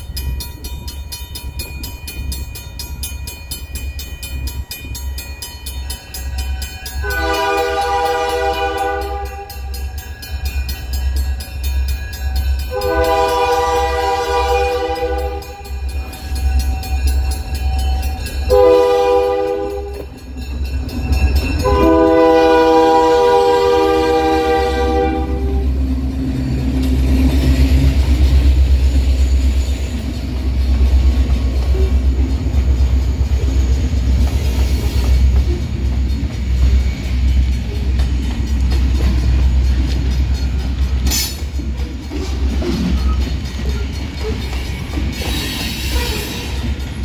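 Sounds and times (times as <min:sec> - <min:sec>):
locomotive air horn blasts: 0:07.0 - 0:09.7, 0:12.7 - 0:15.7, 0:18.5 - 0:20.1, 0:21.6 - 0:25.8
locomotive rumble: 0:07.1 - 0:47.0.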